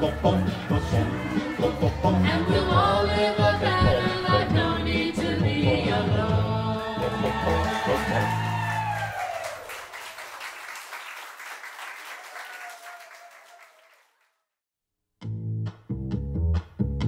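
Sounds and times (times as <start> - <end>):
people clapping: 6.8 - 14.4.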